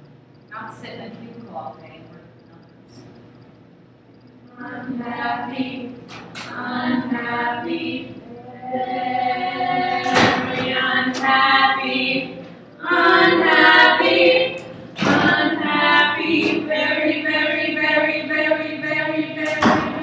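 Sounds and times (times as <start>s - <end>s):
women singing together: 4.5s - 20.0s.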